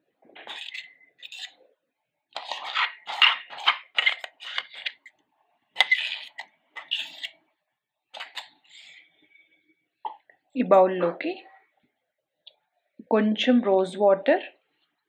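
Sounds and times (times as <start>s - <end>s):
metal spoon scraping steel jar: 0.4s - 1.6s, 2.4s - 5.1s, 5.8s - 7.4s, 8.2s - 9.1s.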